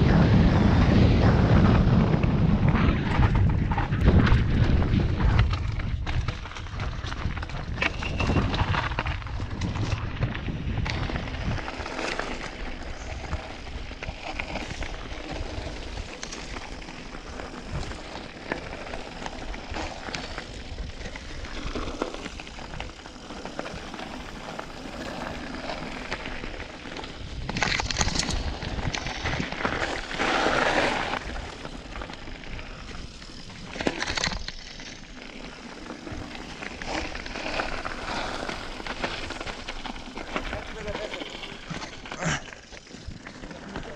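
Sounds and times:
wind on microphone: 0.0s - 16.6s, 23.7s - 34.4s
bike rattling: 0.0s - 43.9s
tyres on loose gravel: 0.0s - 43.9s.

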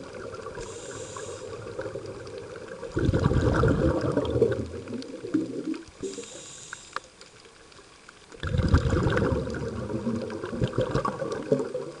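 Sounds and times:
exhaled bubbles rumbling: 0.0s - 0.8s, 1.4s - 6.2s, 8.3s - 12.0s
inhaled air hiss: 0.3s - 7.6s.

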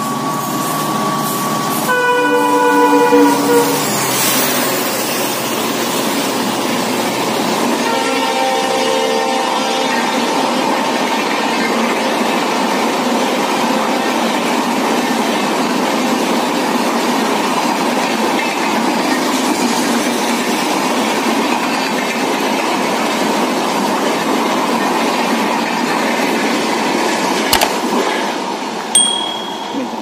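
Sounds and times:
train wheels rumbling on rails: 0.0s - 28.8s
sharp click: 27.6s - 27.8s
short high ding: 29.0s - 30.0s.

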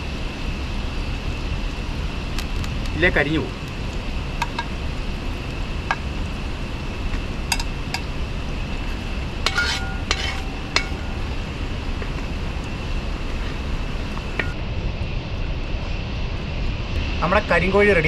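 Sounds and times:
low background rumble: 0.0s - 18.0s
metal ladle clinking against pot: 9.5s - 11.2s.

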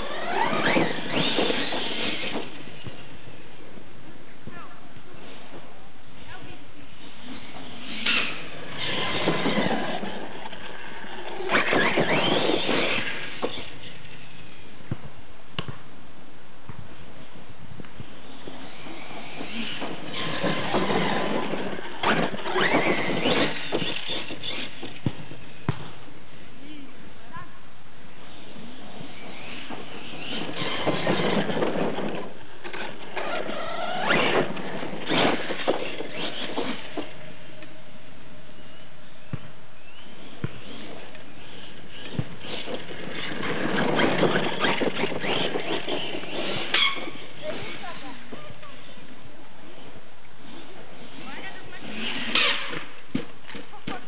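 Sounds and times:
rc truck motor whine: 0.0s - 3.4s, 7.0s - 14.7s, 18.0s - 25.6s, 28.2s - 37.6s, 39.8s - 49.0s
tyres on dirt: 0.0s - 15.9s, 16.6s - 26.6s, 28.1s - 54.0s.

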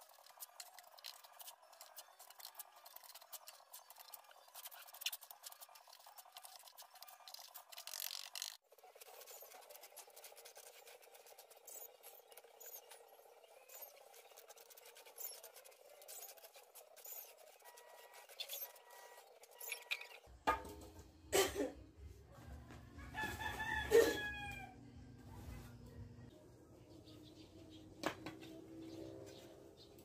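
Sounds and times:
trowel working wet cement: 0.0s - 20.2s
wooden blocks scraping and clicking: 0.0s - 20.3s
rooster crowing: 23.0s - 25.0s.

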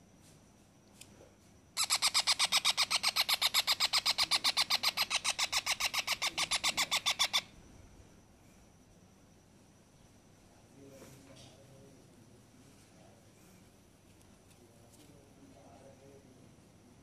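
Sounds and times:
parrot chick harsh chirps: 1.8s - 7.6s.

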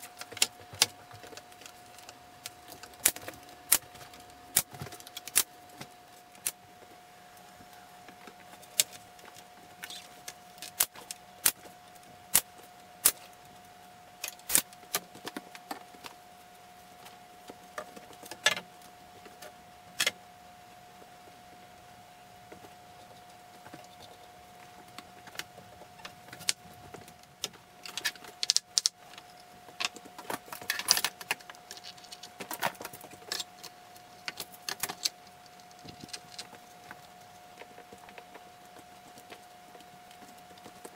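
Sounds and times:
faint high-pitched hum: 0.0s - 40.9s.

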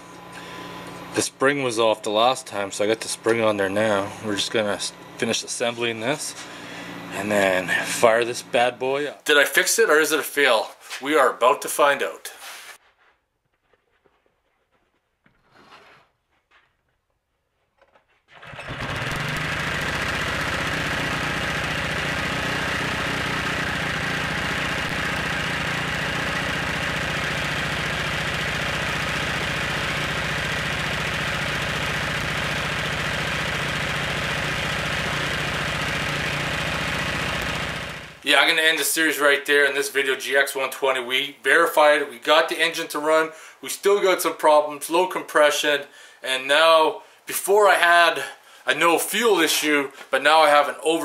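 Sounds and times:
small engine running: 0.0s - 9.0s, 18.3s - 38.2s.

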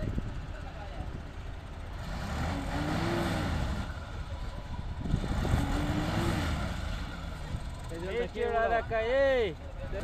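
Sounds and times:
diesel truck engine revving: 1.4s - 8.7s.

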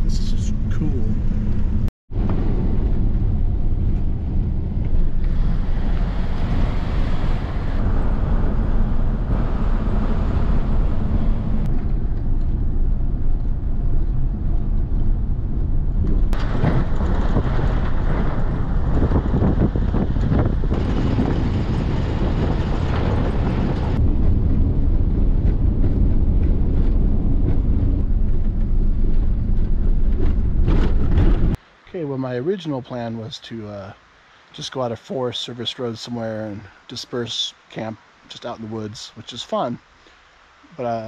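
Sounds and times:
engine and tyres on gravel: 0.8s - 31.7s
wind buffeting microphone: 1.1s - 31.6s.

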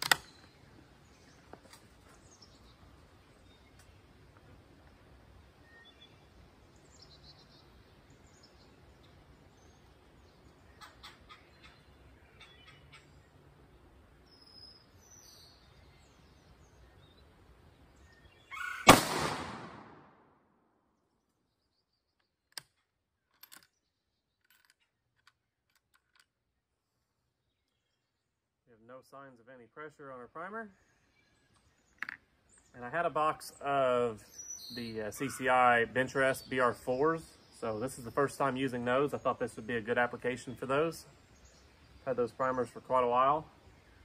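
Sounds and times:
faint bird chirps: 5.6s - 18.8s.

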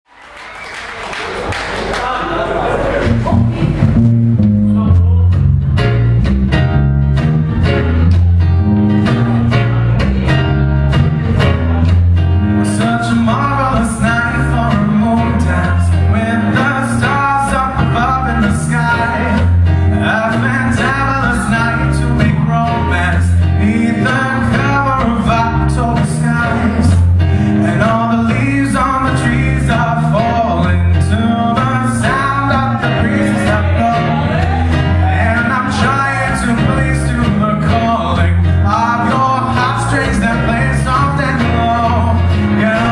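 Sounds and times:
electric bass guitar: 2.8s - 42.9s
man singing lead vocal: 12.6s - 42.9s.

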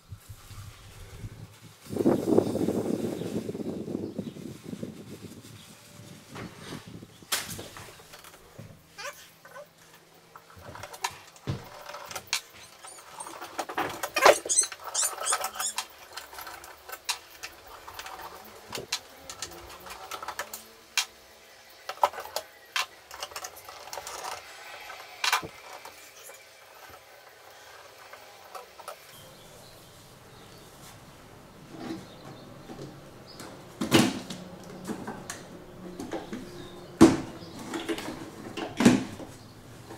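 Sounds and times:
squeaky scraping: 8.0s - 9.8s, 10.7s - 20.5s, 23.1s - 39.9s.

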